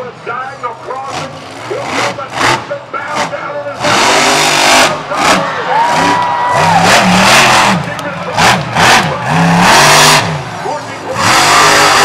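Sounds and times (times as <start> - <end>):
monster truck engine revving: 0.0 - 12.0
crowd cheering: 5.0 - 11.9.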